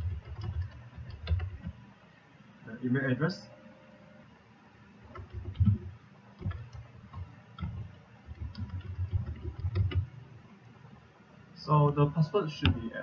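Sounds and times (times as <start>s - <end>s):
typing on computer keyboard: 0.0s - 1.8s, 5.0s - 10.2s.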